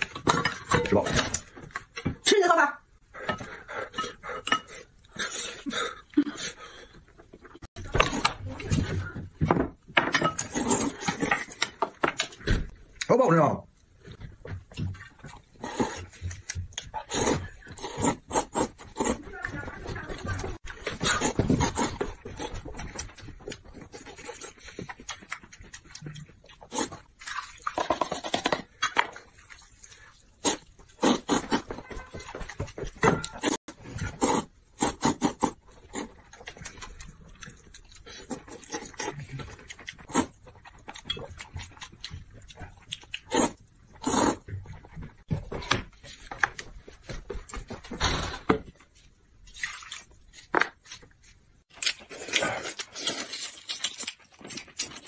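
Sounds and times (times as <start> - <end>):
noodles slurped: 43.2 - 44.5.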